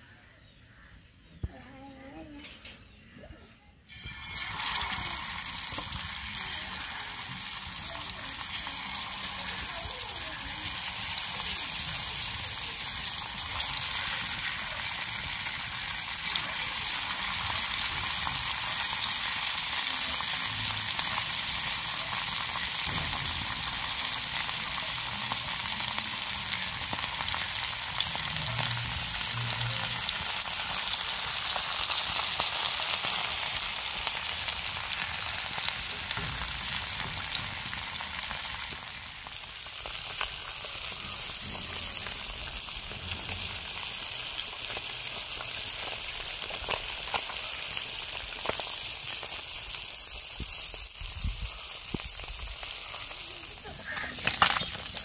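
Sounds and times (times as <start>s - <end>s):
fish sizzling in oil: 3.9s - 55.0s.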